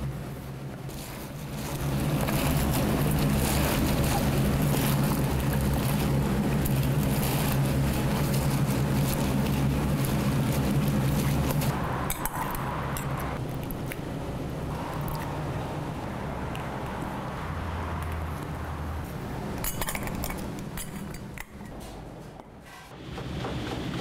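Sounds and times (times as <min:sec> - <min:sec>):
low mechanical hum: 0:00.0 - 0:24.0
wet rustling and squelching: 0:00.9 - 0:11.8.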